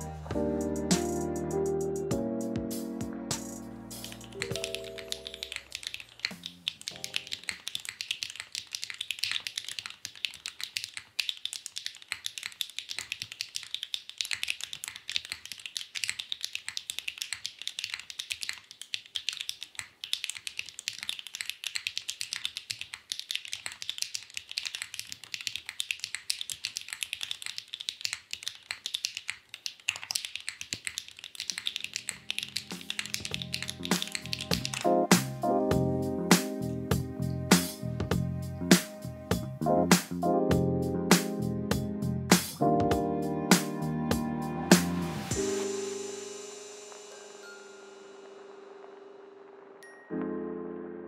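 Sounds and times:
music: 0.0s - 5.6s, 31.9s - 51.0s
fast mechanical keyboard typing: 4.0s - 35.3s.

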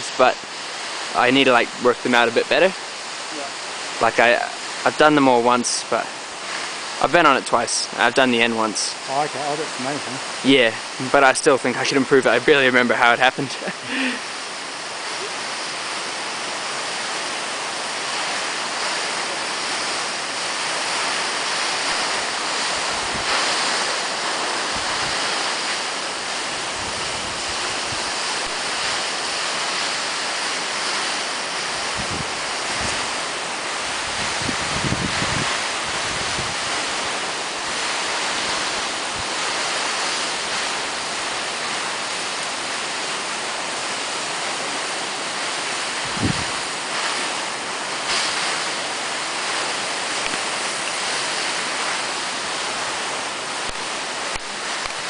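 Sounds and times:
wind buffeting microphone: 16.6s - 42.2s, 44.7s - 55.0s
wind rushing: 17.8s - 30.0s, 30.6s - 41.4s, 45.8s - 55.0s.

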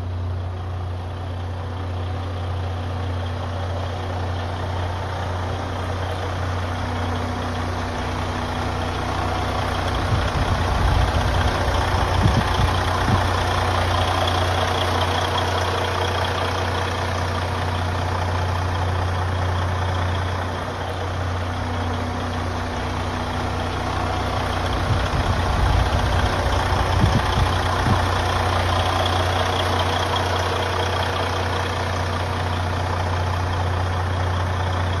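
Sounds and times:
diesel truck engine idling: 0.0s - 35.0s
low rumble: 8.3s - 19.4s, 20.3s - 28.9s.

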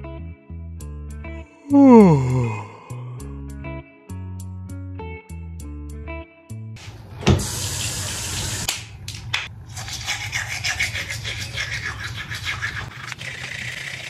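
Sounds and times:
water running at a sink: 6.9s - 8.8s.

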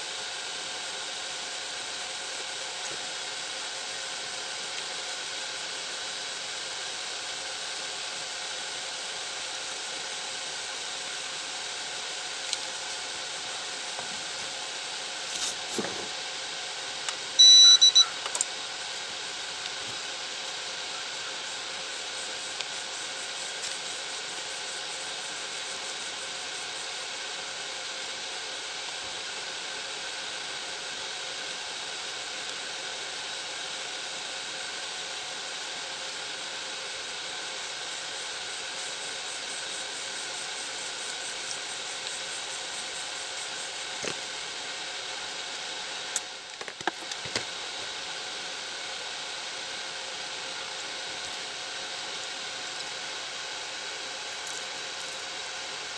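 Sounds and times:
steady background hiss: 0.0s - 55.9s
faint steady tones: 17.4s - 18.4s.

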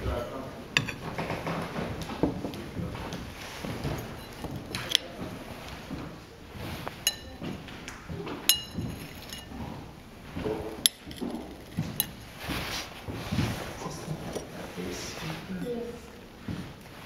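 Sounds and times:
spoon clinking on ceramic: 0.8s - 1.0s, 3.8s - 5.1s, 7.0s - 7.6s, 8.5s - 9.5s, 10.8s - 12.2s.

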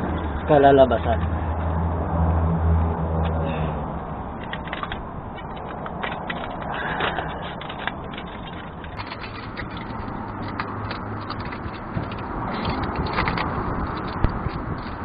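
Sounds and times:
metal tape crinkling: 4.3s - 15.0s.

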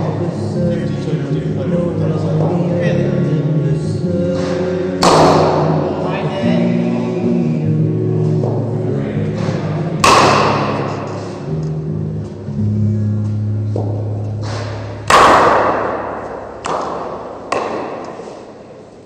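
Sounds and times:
cricket bat striking ball: 10.0s - 10.8s, 14.4s - 18.4s.

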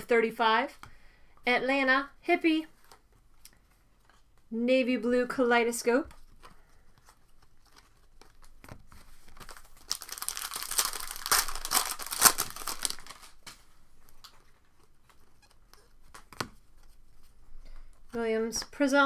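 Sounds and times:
wrapper crinkling and tearing: 7.4s - 13.6s.

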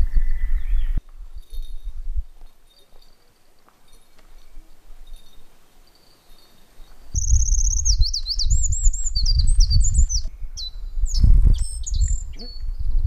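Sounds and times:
bird singing trills and whistles: 0.0s - 1.8s, 5.1s - 13.0s.

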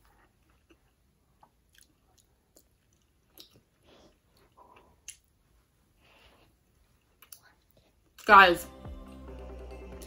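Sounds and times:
faint chewing: 0.0s - 5.6s, 6.4s - 8.2s
soft mouth clicks: 1.4s - 3.6s, 7.2s - 7.8s.

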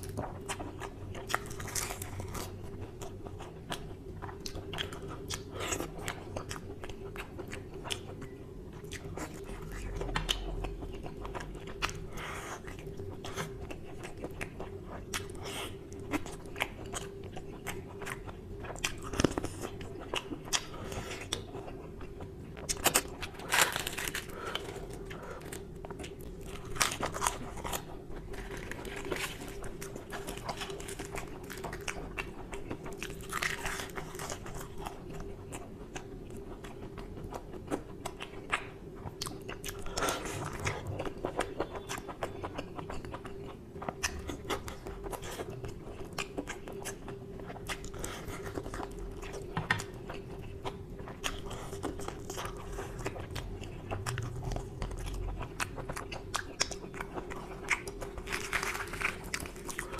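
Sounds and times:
faint steady hum: 0.0s - 59.9s
chewing and mouth smacks: 24.0s - 59.9s.

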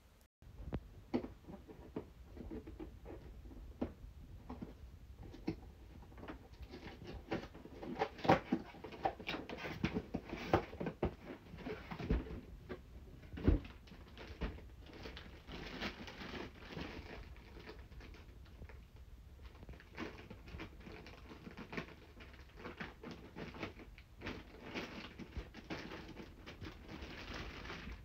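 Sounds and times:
cardboard box tape crackling: 4.5s - 28.0s
plastic wrapping rustling: 13.2s - 28.0s.

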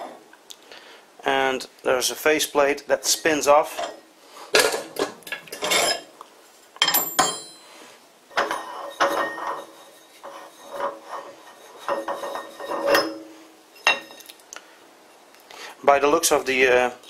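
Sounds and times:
metal ringing clink: 6.8s - 7.7s
metal scraping: 8.3s - 13.4s.

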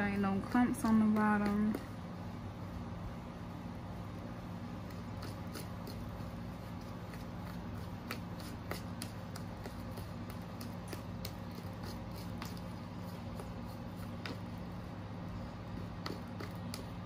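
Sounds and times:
brush scraping plastic bowl: 4.9s - 14.6s.

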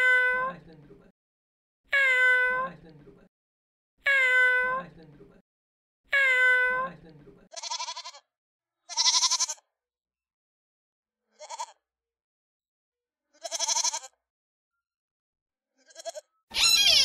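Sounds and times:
goats bleating: 13.4s - 14.1s, 15.9s - 17.0s
call with falling pitch: 16.5s - 17.0s.

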